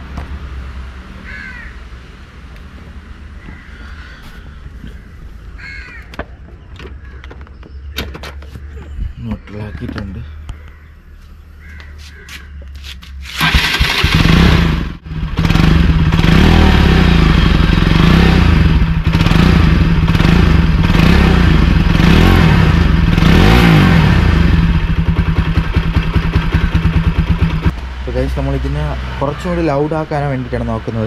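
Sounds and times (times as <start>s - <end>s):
motorcycle engine revving: 13.3s - 31.0s.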